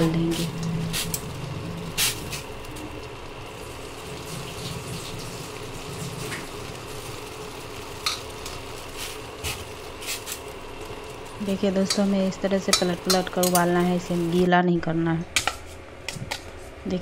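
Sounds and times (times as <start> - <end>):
water simmering in a pan: 0.0 - 14.4
spatula tapping pan: 11.8 - 13.7.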